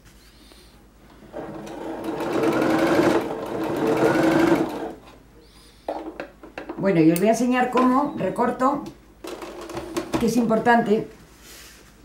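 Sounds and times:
sewing machine stitching: 1.3 - 5.0.

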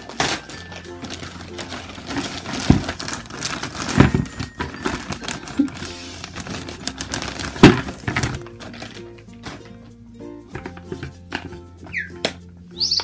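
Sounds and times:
plastic bag crinkling: 0.0 - 9.8
soft background music: 0.0 - 13.0.

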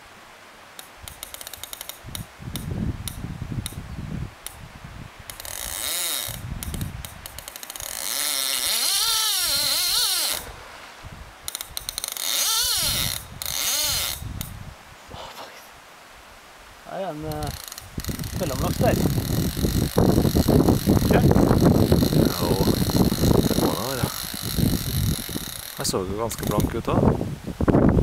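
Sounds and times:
fishing reel drag buzzing: 5.3 - 10.6, 11.4 - 14.3, 17.3 - 26.6.

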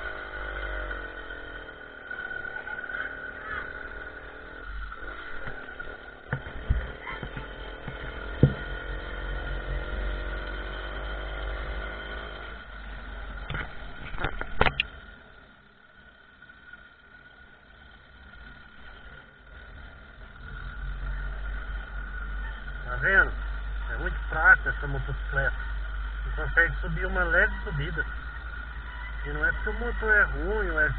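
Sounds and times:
small motorcycle engine running: 0.0 - 30.9
sharp knocks from bumps: 6.3 - 8.8.

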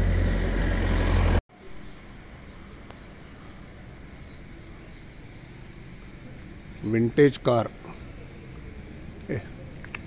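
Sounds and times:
low rumble of street traffic: 0.0 - 10.0
steady background noise: 0.0 - 10.0.

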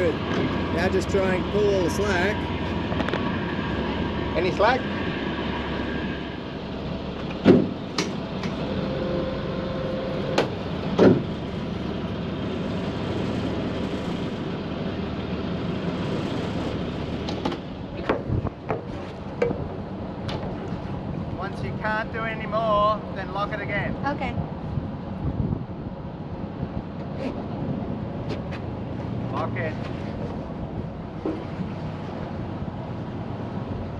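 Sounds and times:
boat engine running: 0.0 - 23.4, 26.0 - 33.9
knocks and clunks on deck: 7.3 - 8.2, 10.4 - 11.3.

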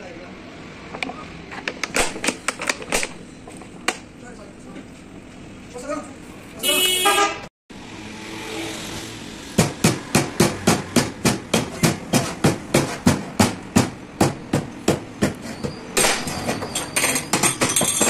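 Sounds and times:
sharp metal knocks: 9.6 - 18.0.

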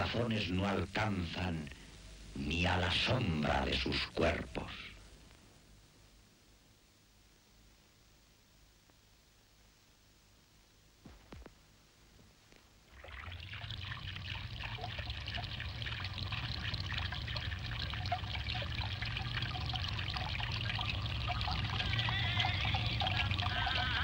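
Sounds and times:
running splashing water: 12.9 - 24.0.

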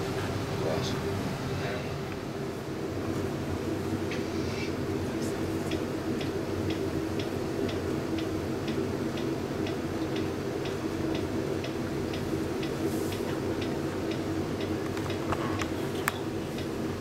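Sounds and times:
steady ticking: 5.7 - 12.8, 13.6 - 16.8.

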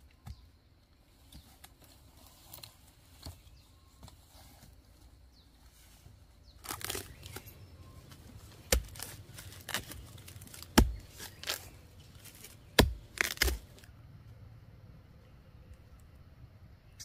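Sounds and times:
rustling and scraping: 1.1 - 13.9.

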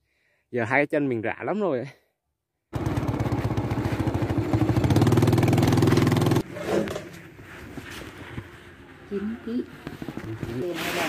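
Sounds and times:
motorcycle engine riding: 2.7 - 7.1.

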